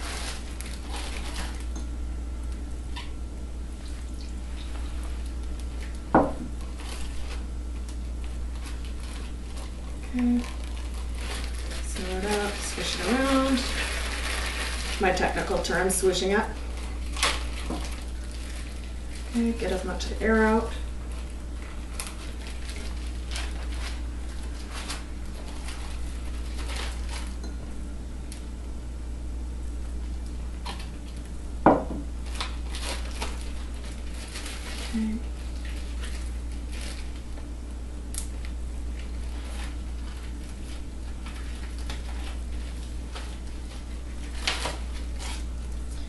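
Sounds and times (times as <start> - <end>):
plastic bag crinkling: 0.0 - 1.8, 3.7 - 27.4, 32.2 - 37.5, 38.2 - 46.0
steady low hum: 0.0 - 46.0
liquid pouring into a bag: 10.4 - 15.7.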